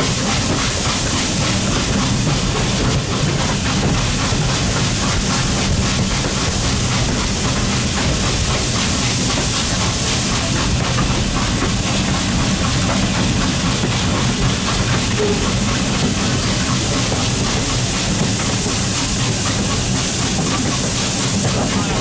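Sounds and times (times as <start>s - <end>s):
steam train running on rails: 0.0s - 22.0s.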